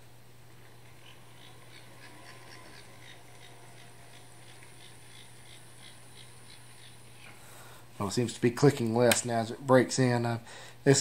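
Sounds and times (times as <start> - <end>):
steady low hum: 0.0 - 11.0
model locomotive clicking: 1.2 - 7.0.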